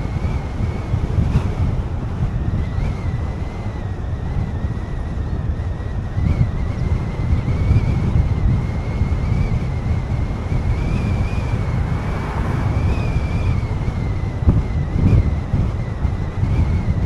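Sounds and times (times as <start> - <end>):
car road rumble: 0.0 - 17.0
wind buffeting microphone: 0.0 - 17.0.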